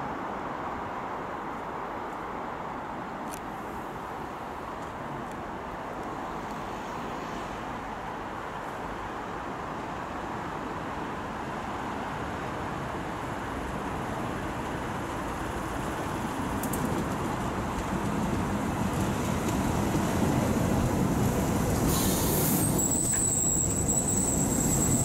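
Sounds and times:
electric train approaching: 14.9 - 25.0.

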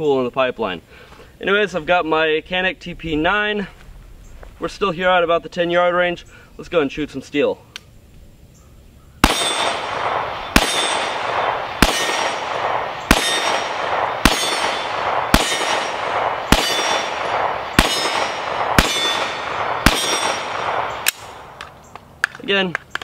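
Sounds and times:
pistol shots: 9.2 - 21.8
steel plate ringing clang: 13.1 - 20.6.

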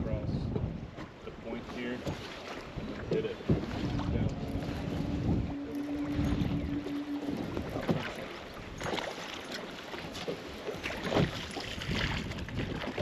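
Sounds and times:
wind on microphone: 0.0 - 1.1, 2.6 - 9.2, 10.7 - 13.0
water slapping against boat hull: 0.4 - 5.5, 6.1 - 13.0
sharp knocks and splashes: 0.5 - 13.0
steady hum: 3.8 - 8.4.

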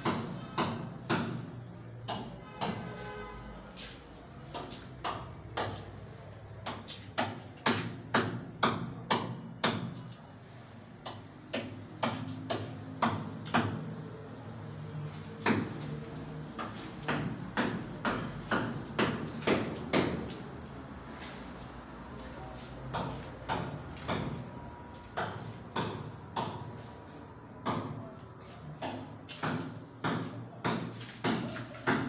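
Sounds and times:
sharp knocks: 0.0 - 3.0, 16.6 - 20.4, 25.1 - 26.8, 28.8 - 32.0.

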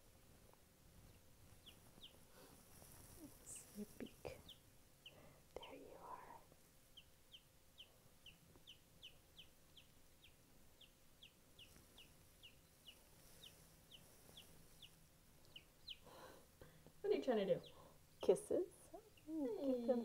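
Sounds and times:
chick peeping: 1.0 - 5.3, 6.9 - 16.3, 17.2 - 19.9.

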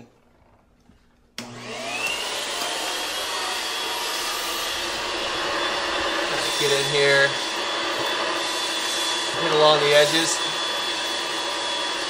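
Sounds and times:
vacuum motor whine: 1.4 - 12.0.

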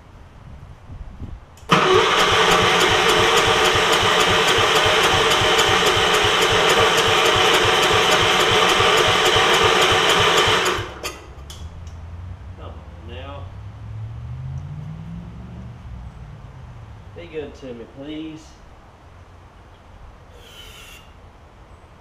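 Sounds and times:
electric starter cranking engine: 1.6 - 11.4.

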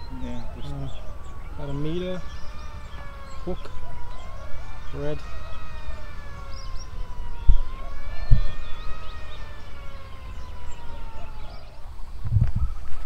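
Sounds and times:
siren wailing: 0.0 - 13.0.

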